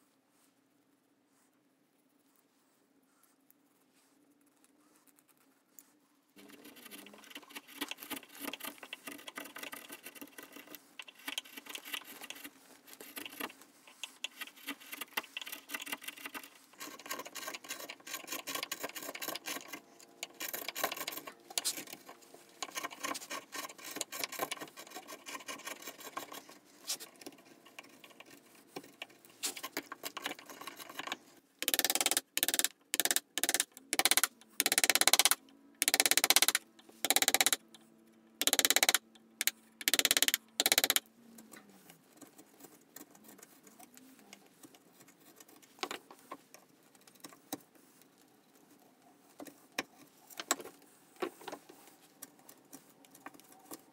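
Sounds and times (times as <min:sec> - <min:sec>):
knife and file rasping wood: 0:06.4 - 0:31.1
chisel paring wood: 0:29.5 - 0:37.6, 0:38.4 - 0:39.0.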